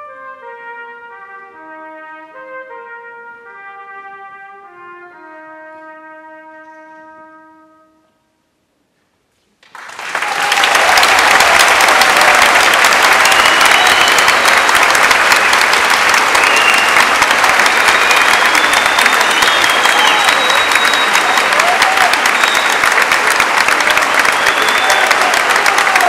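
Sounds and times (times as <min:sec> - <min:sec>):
audience applause: 0:09.6 - 0:26.0
high whistles: 0:12.8 - 0:25.5.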